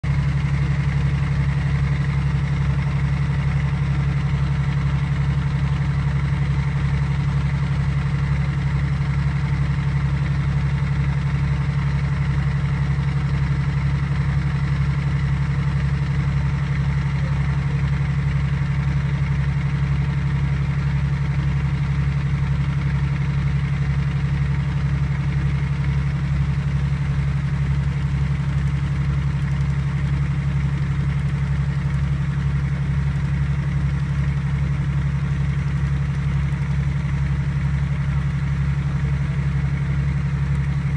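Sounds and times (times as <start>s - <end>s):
boat engine droning: 0.0s - 40.9s.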